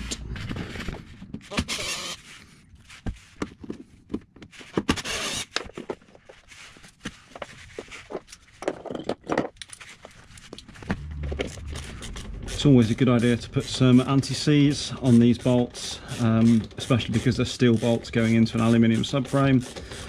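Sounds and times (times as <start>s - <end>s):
hand tool clicking and scraping: 7.8s - 20.0s.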